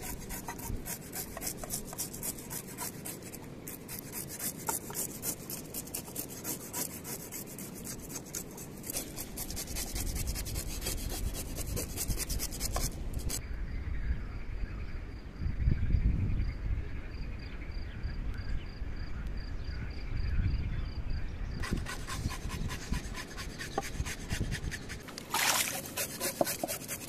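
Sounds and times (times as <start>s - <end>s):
knife scraping fish scales: 0.0s - 13.4s, 21.6s - 27.0s.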